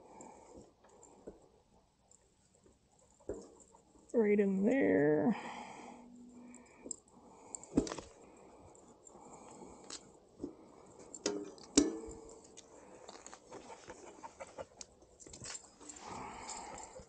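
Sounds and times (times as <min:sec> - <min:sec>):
bike wheel clicks and knocks: 0:11.2 - 0:12.6.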